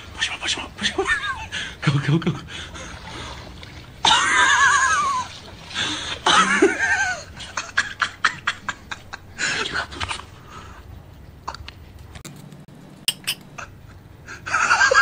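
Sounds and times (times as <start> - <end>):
people laughing: 0.2 - 3.0, 4.0 - 10.2, 13.6 - 15.0
sharp clicks: 11.5 - 13.5.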